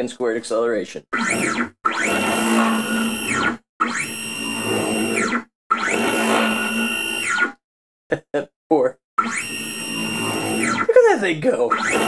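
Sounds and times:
stepper motors whining: 1.1s - 7.6s, 9.2s - 11.0s, 11.6s - 12.0s.

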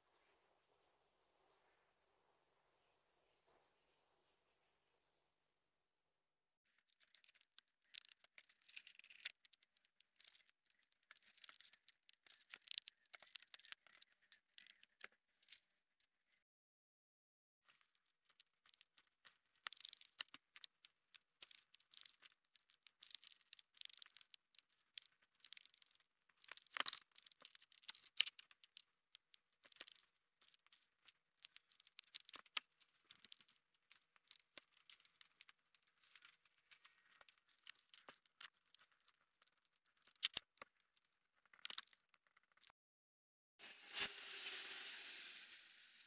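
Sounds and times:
squirrel gnawing and scratching: 6.7s - 15.8s, 17.7s - 42.7s.

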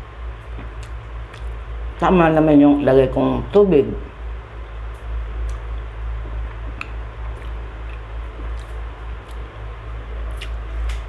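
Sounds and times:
low hum: 0.0s - 11.0s
person chewing: 0.4s - 1.6s, 6.7s - 11.0s.

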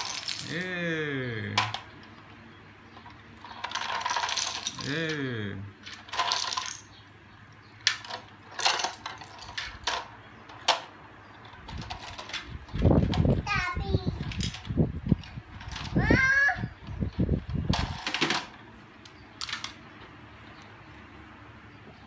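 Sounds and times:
pieces clicking onto tiles: 0.0s - 0.8s, 3.5s - 6.9s, 7.8s - 12.5s
wooden puzzle pieces clattering: 0.0s - 0.8s, 3.0s - 7.0s, 7.8s - 13.2s, 17.6s - 18.6s, 19.4s - 19.8s.

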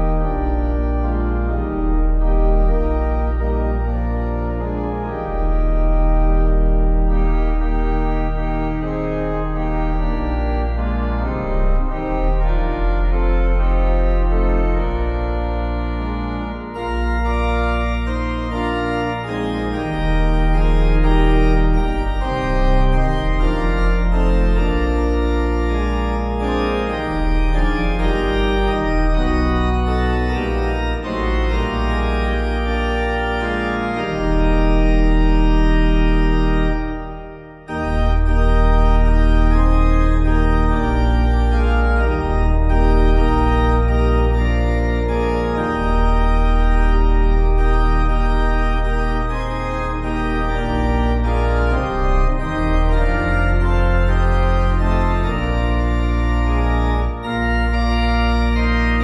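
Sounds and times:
slow organ chords: 0.0s - 59.0s.

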